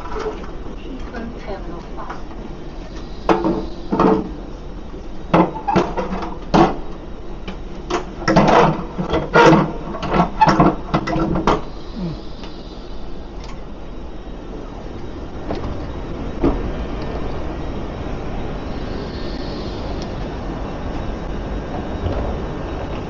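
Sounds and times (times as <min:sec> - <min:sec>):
knocks and clatters: 0:07.5 - 0:11.7.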